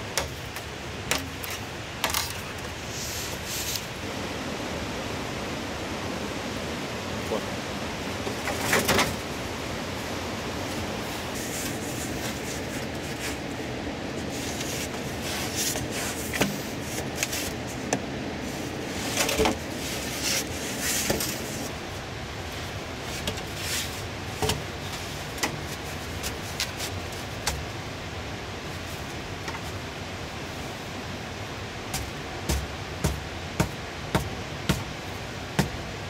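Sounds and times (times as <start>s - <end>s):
steady hiss: 0.0s - 36.0s
bamboo bumping onto sand: 31.9s - 35.8s.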